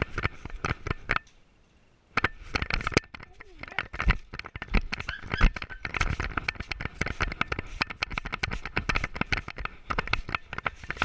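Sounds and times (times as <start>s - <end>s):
camera rubbing against dog fur: 3.7s - 11.0s.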